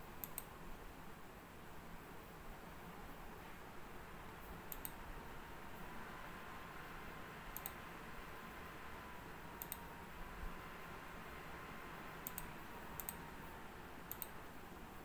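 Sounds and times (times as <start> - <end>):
faint steady hiss: 0.0 - 15.0.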